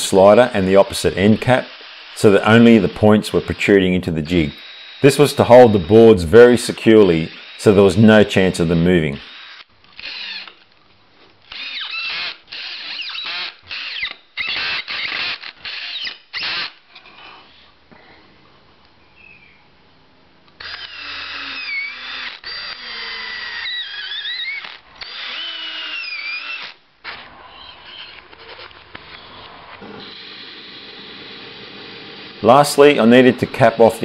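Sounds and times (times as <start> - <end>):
cordless drill motor whine: 4.3 - 6.1, 6.8 - 7.8, 9.2 - 10.6, 11.5 - 16.8, 20.6 - 32.4.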